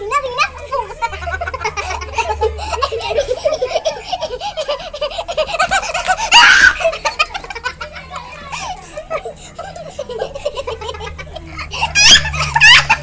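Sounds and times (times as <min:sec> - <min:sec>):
girls laughing: 0:00.2 - 0:13.0
high shriek of laughter: 0:06.1 - 0:07.2, 0:11.7 - 0:13.0.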